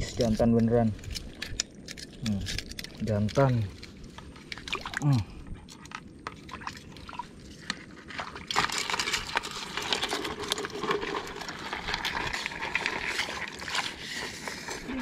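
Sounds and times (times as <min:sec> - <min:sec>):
water splashing over mud: 0:04.4 - 0:15.0.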